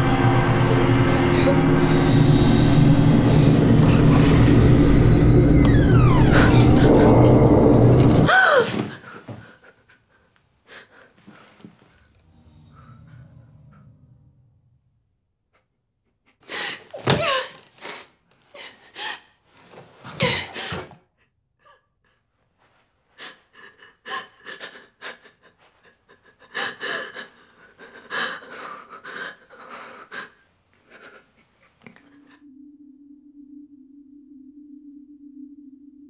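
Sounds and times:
steady low tone: 0:00.0 - 0:08.3, 0:12.0 - 0:15.4, 0:31.9 - 0:36.0.

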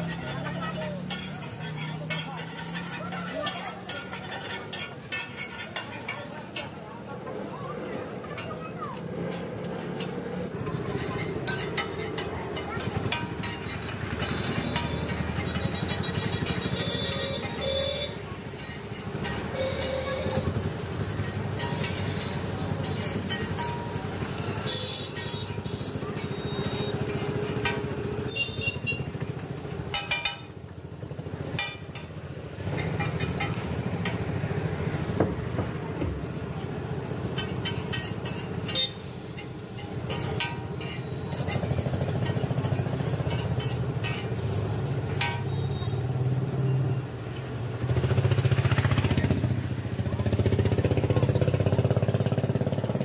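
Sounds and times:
metal spatula scraping on griddle: 0:00.0 - 0:06.8, 0:09.4 - 0:28.9, 0:31.5 - 0:34.8, 0:37.0 - 0:46.0.

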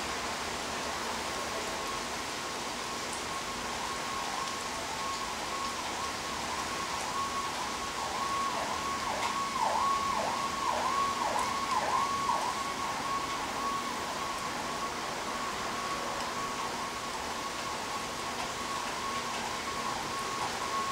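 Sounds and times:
rain hissing: 0:00.0 - 0:20.9
emergency vehicle siren: 0:00.5 - 0:20.9.

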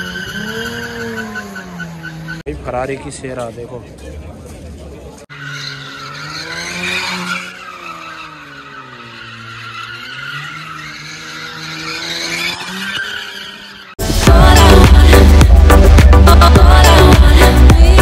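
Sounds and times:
car engine at high revs: 0:05.3 - 0:14.0
loud electronic music: 0:14.0 - 0:18.0.

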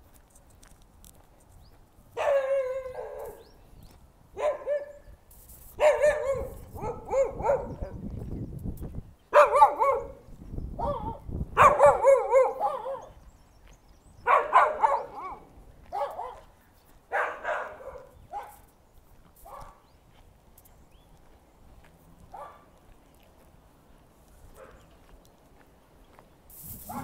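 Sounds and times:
dog barking loudly: 0:02.2 - 0:03.5, 0:04.4 - 0:05.1, 0:05.8 - 0:08.0, 0:09.3 - 0:13.2, 0:14.2 - 0:16.5, 0:17.1 - 0:18.6, 0:19.5 - 0:19.8, 0:22.3 - 0:22.7, 0:24.6 - 0:24.9.

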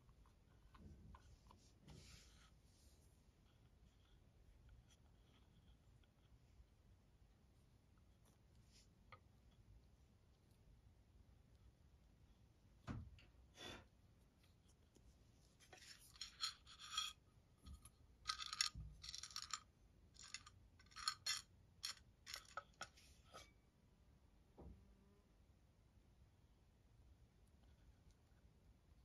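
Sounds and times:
cloves rattling in a metal bowl: 0:16.1 - 0:17.2, 0:18.2 - 0:19.6, 0:20.2 - 0:22.7.

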